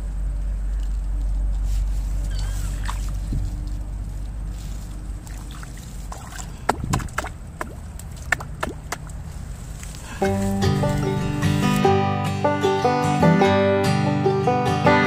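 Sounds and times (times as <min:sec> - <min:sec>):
water sloshing: 0:02.3 - 0:11.8
sharp knocks and splashes: 0:05.2 - 0:09.3.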